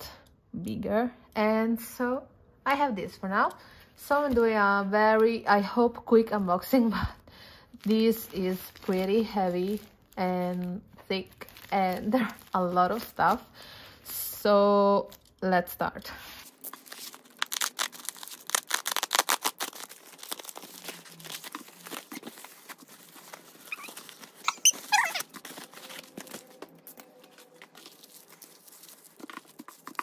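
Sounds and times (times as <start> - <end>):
plastic crinkling: 7.6 - 14.0, 16.2 - 30.0
bubble mailer tearing: 7.8 - 13.5, 16.4 - 30.0
brief squeak: 23.7 - 25.3.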